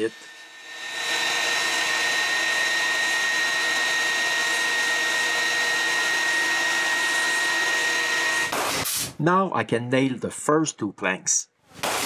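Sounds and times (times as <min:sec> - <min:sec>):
electric wood planer whining: 0:00.0 - 0:08.5.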